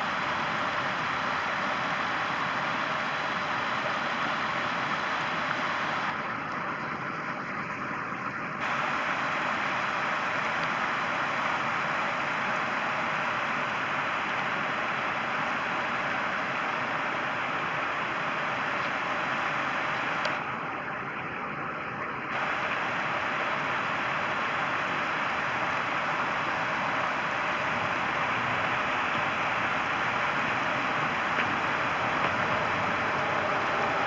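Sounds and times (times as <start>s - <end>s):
water rushing over rocks: 0.0s - 34.0s.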